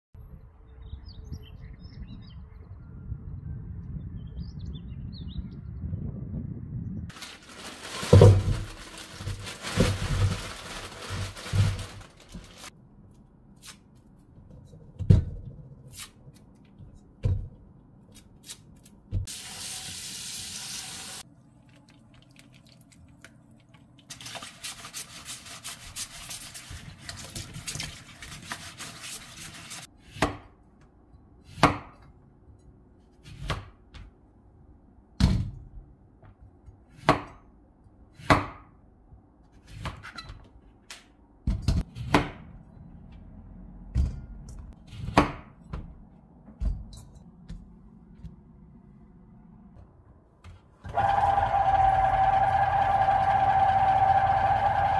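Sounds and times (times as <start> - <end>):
water running into steel bowl: 19.3 - 23.3.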